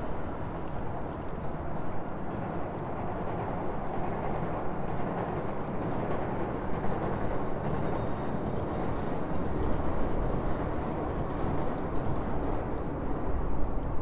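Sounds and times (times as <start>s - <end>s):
water lapping around piers: 0.0s - 7.6s
low rumble under bridge: 0.0s - 14.0s.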